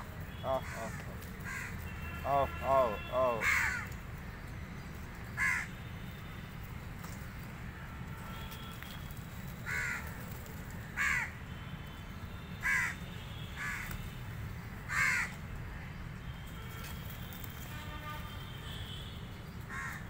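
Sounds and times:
crows cawing: 0.0s - 4.0s, 5.4s - 5.8s, 9.6s - 10.2s, 10.8s - 11.4s, 12.6s - 13.0s, 13.6s - 14.0s, 14.9s - 15.4s, 19.7s - 20.0s.

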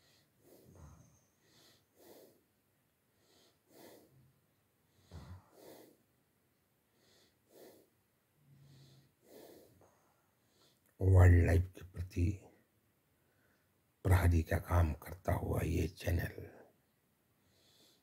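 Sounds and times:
soft breaths: 0.0s - 11.0s, 12.4s - 14.0s, 16.4s - 18.0s.

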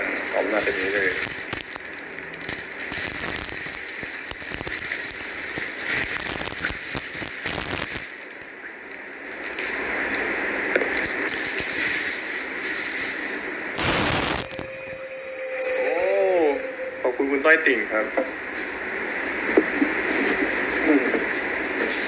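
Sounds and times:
plastic packaging crinkling: 0.4s - 8.0s.

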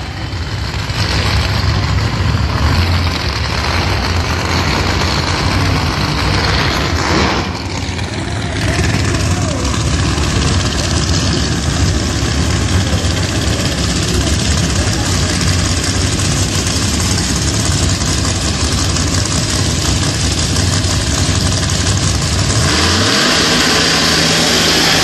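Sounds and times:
race car engine idling and revving: 0.0s - 25.0s.

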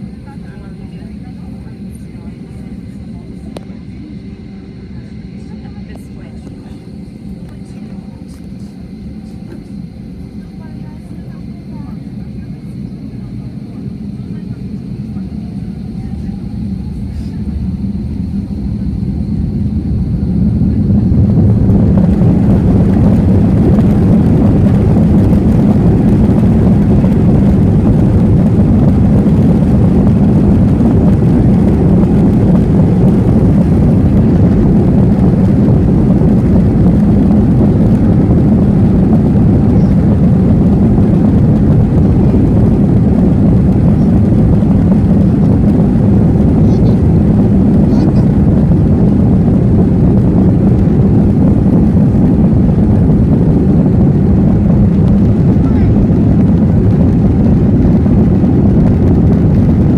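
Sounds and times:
jet engines roaring: 0.0s - 59.9s
wheels rumbling on runway: 0.0s - 59.9s.

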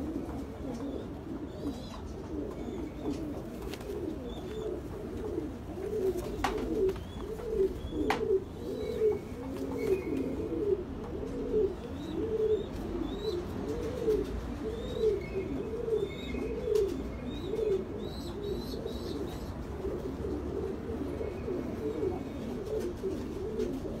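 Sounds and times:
pigeons cooing: 0.0s - 24.0s
small birds chirping: 0.6s - 4.8s, 5.8s - 10.6s.

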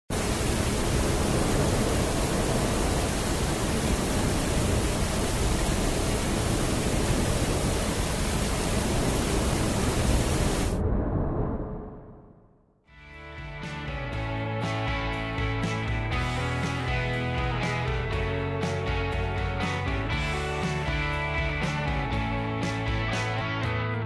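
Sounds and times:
loud steady rushing noise: 0.1s - 10.8s.

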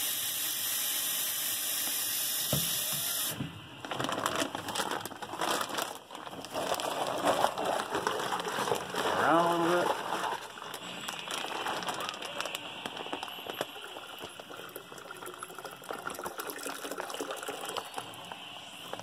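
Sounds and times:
plastic bag crackling: 3.7s - 19.0s
water splashing into bucket: 13.5s - 18.2s.

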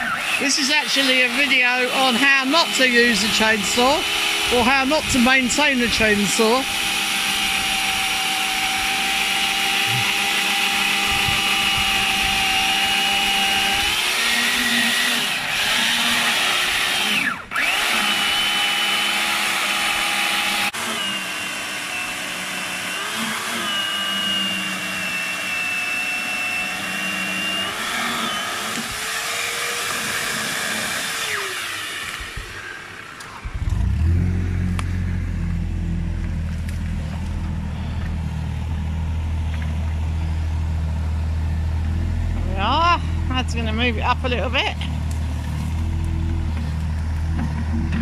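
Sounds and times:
electric chainsaw cutting log: 0.0s - 48.0s.

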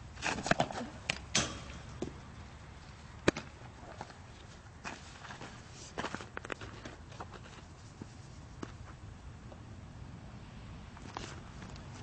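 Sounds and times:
footsteps scuffing on dirt: 4.0s - 9.0s.

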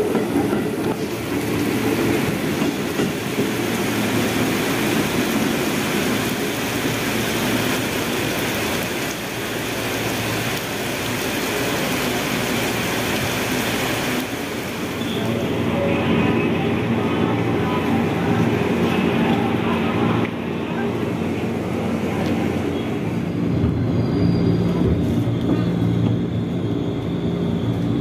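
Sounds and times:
train wheels on rail: 0.0s - 9.4s, 18.3s - 28.0s
heavy rain hissing: 1.0s - 23.5s.

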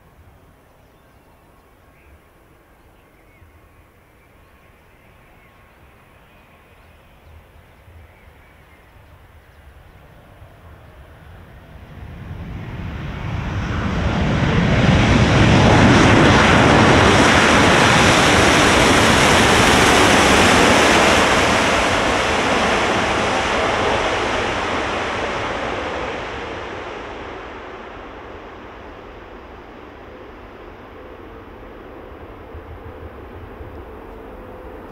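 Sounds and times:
jet engines roaring: 9.7s - 34.9s.

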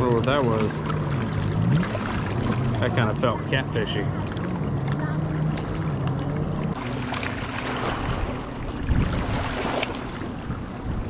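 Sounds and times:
motorboat engine droning: 0.0s - 11.0s
water lapping: 0.0s - 11.0s
wind on microphone: 7.7s - 11.0s.

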